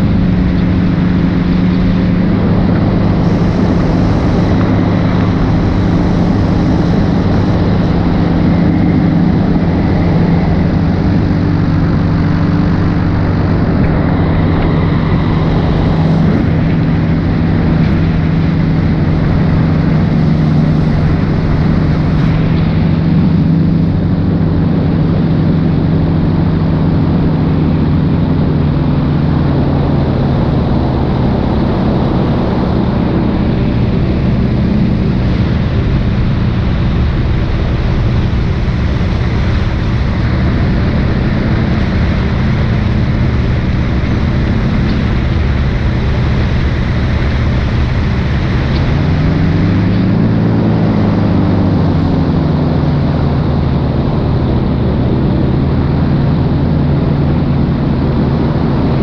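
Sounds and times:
paramotor engine and propeller: 0.0s - 59.0s.

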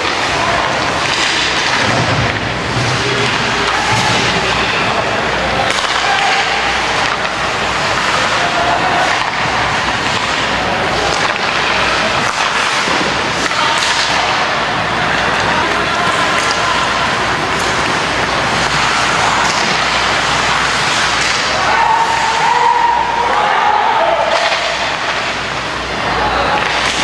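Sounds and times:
hockey stick hitting puck: 0.0s - 5.0s, 5.6s - 23.5s, 24.2s - 25.4s, 26.5s - 27.0s
people shouting: 3.0s - 25.3s
skates scraping ice: 5.6s - 23.4s.

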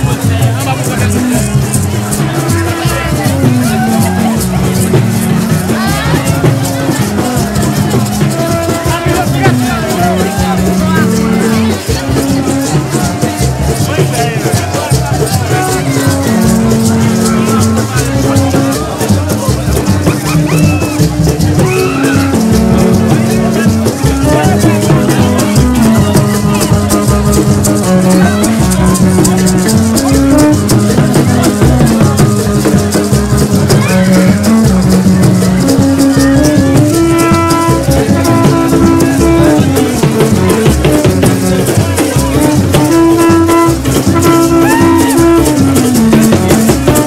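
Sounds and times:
maraca shaking fast: 0.0s - 47.0s
horn notes: 19.8s - 47.0s.

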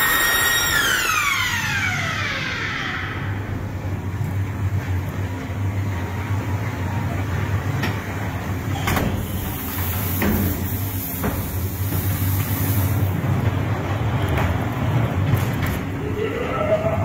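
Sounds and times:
train rumbling: 3.2s - 17.0s
train hiss: 9.1s - 13.3s.

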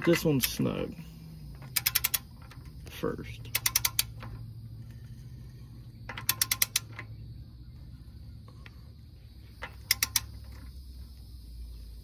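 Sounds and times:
hand ratchet clicking: 1.6s - 2.8s, 3.4s - 4.4s, 6.1s - 7.1s, 9.6s - 10.6s.

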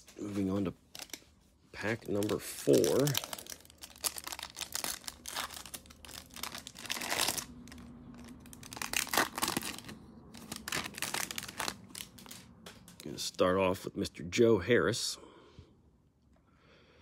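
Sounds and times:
foil wrapper crinkling and tearing: 0.0s - 12.5s.

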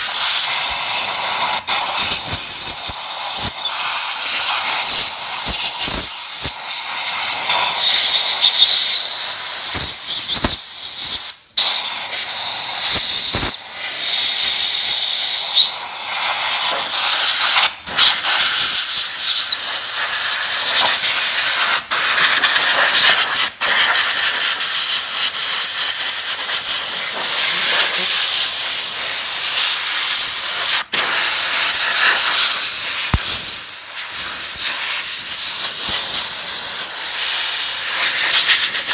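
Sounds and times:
spray nozzle hissing: 0.0s - 38.9s.

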